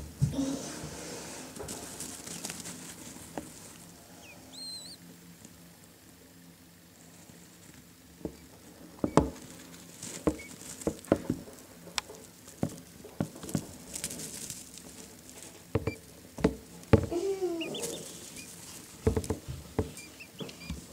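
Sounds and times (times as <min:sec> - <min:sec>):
chicks pecking and scratching: 0:00.2 - 0:20.9
chicks peeping: 0:00.3 - 0:05.5, 0:07.2 - 0:20.9.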